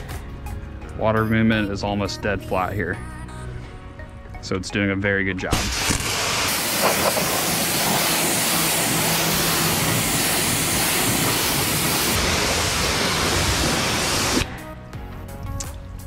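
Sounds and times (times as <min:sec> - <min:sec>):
pressure washer spraying water: 0:05.5 - 0:14.5.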